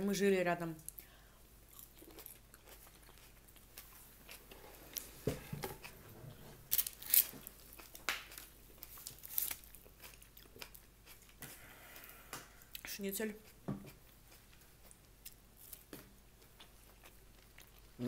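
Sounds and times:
crunching crispy food: 6.7 - 11.4.

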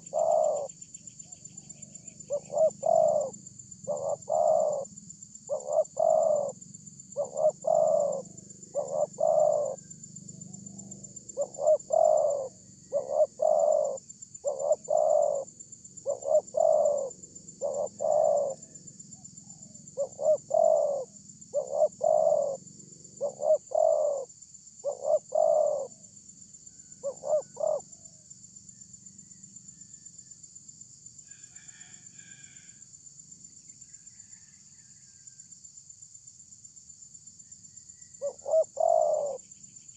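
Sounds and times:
dove cooing: 0.0 - 26.0, 26.8 - 28.1, 38.2 - 39.4.

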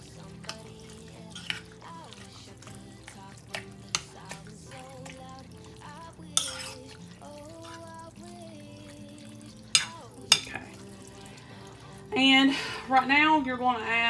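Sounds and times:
spoon stirring wet food: 0.0 - 12.3
soft background music: 0.0 - 14.0
spoon clinking against bowl: 6.3 - 7.0, 9.7 - 10.8.

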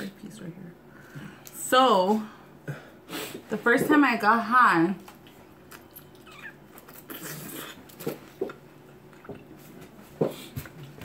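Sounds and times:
quiet chewing: 5.0 - 10.9.

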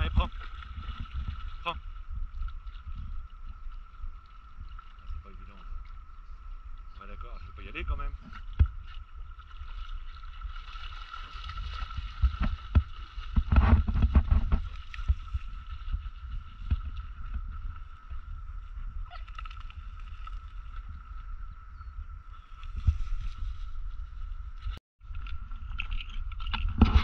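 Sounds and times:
wind rumble on microphone: 0.0 - 27.0.

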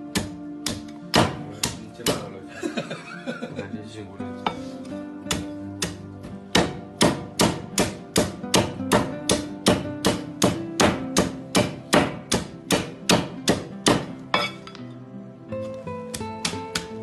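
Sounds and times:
cleaver chopping on wooden block: 0.1 - 2.3, 5.3 - 14.5, 16.1 - 17.0.

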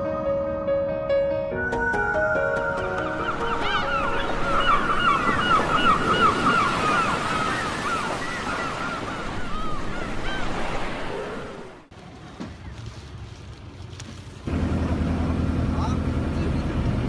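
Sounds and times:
sea waves washing: 2.0 - 12.0
chorus of animal calls: 3.0 - 11.8.

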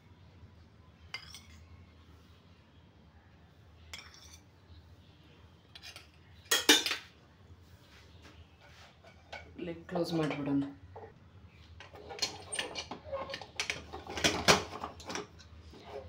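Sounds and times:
metal spoon clinking on cookware: 1.1 - 1.6, 3.9 - 4.4, 5.7 - 7.0.

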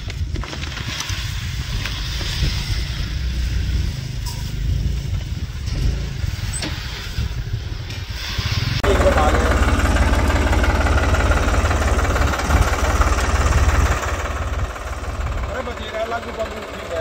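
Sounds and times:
tractor diesel engine idling: 8.8 - 17.0.

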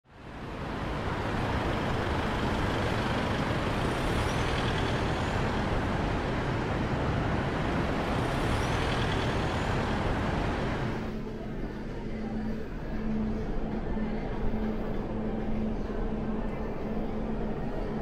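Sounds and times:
road traffic roar: 0.1 - 11.7.

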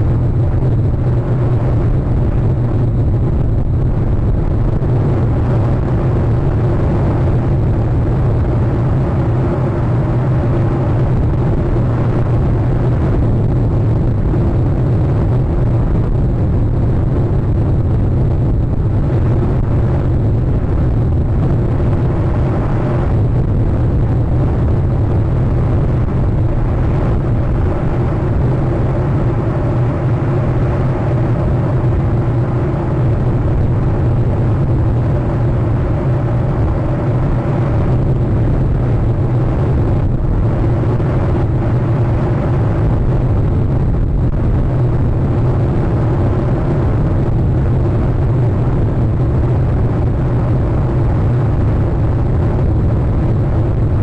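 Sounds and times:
constant hum: 0.0 - 54.0
loud low rumble: 0.0 - 54.0.

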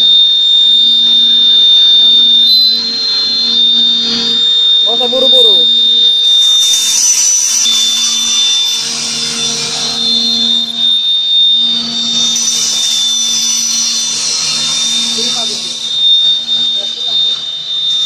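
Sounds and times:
high steady whine: 0.0 - 18.0
machine motor hum: 0.0 - 18.0
machine hiss: 5.8 - 18.0.

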